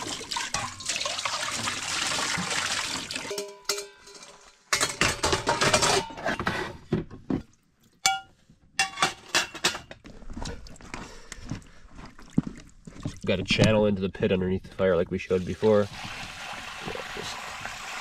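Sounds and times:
dishes and metal pots clattering: 0:00.0 - 0:01.0, 0:03.1 - 0:10.0
water pouring: 0:00.0 - 0:04.7, 0:15.2 - 0:18.0.

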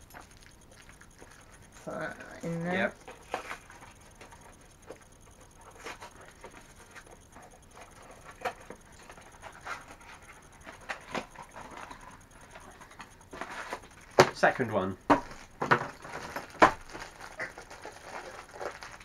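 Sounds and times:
packaging rustling and crinkling: 0:08.2 - 0:19.0.

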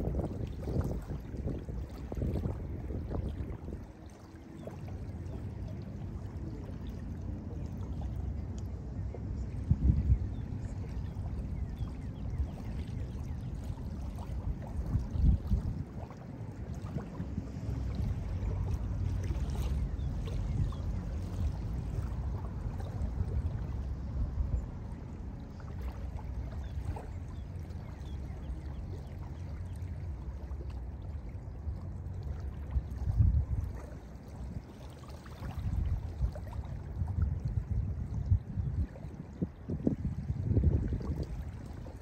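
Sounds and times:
waves lapping on sandy shore: 0:00.0 - 0:08.7
wind rumble on microphone: 0:00.0 - 0:42.0.

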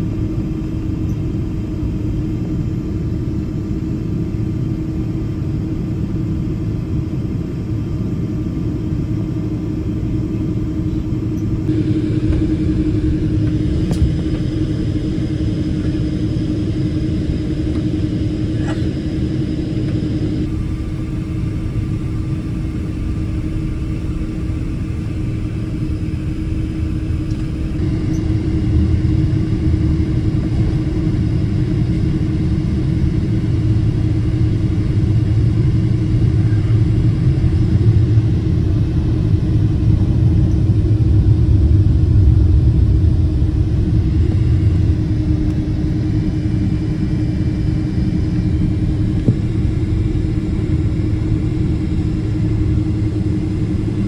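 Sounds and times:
jet engine drone: 0:00.0 - 0:54.0
heavy rumble of wheels: 0:09.7 - 0:54.0.

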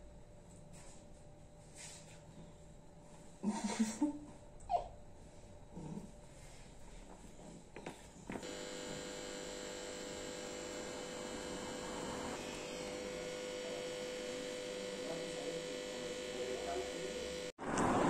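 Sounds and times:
machine hum: 0:08.3 - 0:18.0.

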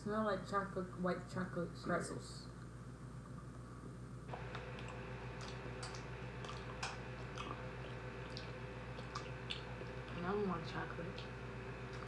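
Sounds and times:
people chewing and crunching: 0:04.3 - 0:12.0.

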